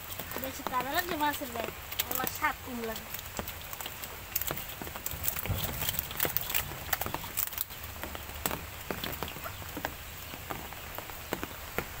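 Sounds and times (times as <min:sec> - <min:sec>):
fish flapping and slapping: 0:00.0 - 0:12.0.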